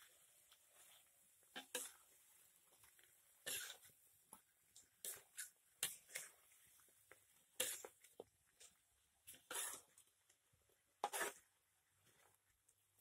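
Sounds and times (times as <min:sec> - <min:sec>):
spatula scraping a wok: 0:00.0 - 0:04.0, 0:05.0 - 0:06.8, 0:07.4 - 0:08.0, 0:09.3 - 0:10.0, 0:11.0 - 0:11.6.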